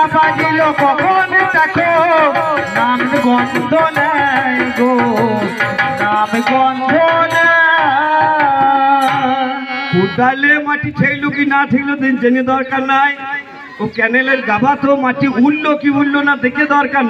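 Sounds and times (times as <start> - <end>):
man singing long wavering notes: 0.0 - 10.7.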